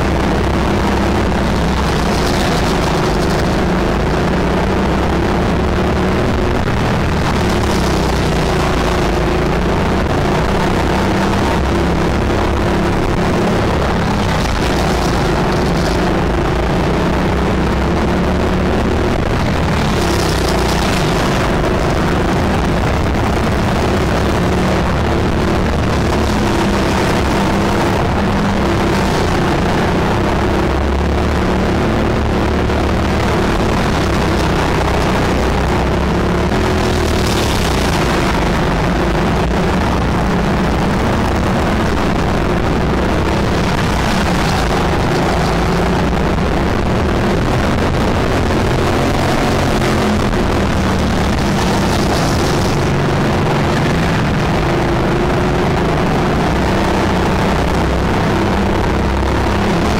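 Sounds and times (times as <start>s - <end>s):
go-kart engine running: 0.0s - 59.9s.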